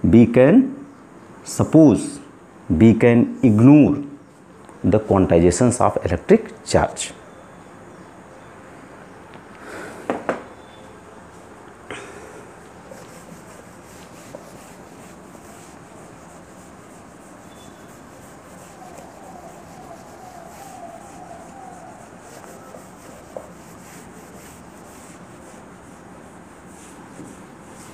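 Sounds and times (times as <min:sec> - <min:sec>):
light knock: 0:10.1 - 0:10.5
faint squeak: 0:10.4 - 0:11.0, 0:17.4 - 0:23.1
cloth rubbing on whiteboard: 0:12.6 - 0:27.9.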